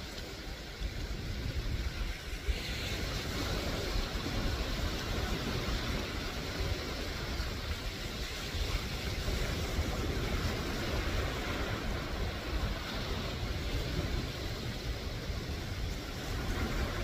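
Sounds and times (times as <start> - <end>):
wind noise on microphone: 0.0 - 17.0.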